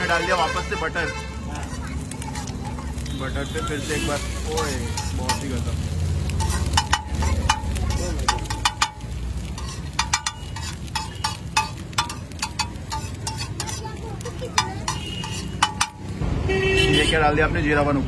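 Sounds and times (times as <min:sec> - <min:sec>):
butter sizzling on a griddle: 0:00.0 - 0:18.0
metal spatula scraping and tapping: 0:01.6 - 0:03.1, 0:04.1 - 0:16.2.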